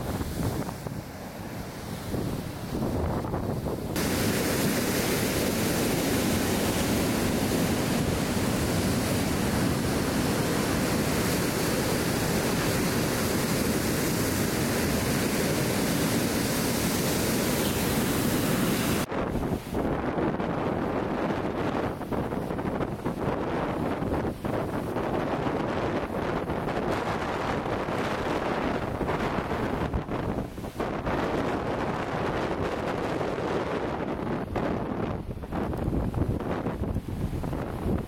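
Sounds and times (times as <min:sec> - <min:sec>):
wind buffeting microphone: 0:00.0 - 0:38.0
storm waves breaking on wall: 0:02.0 - 0:19.1.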